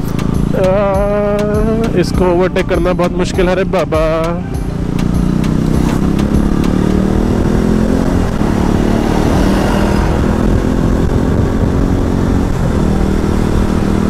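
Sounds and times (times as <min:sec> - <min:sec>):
motorcycle engine accelerating: 0:00.0 - 0:14.0
wind rushing over camera: 0:05.4 - 0:14.0.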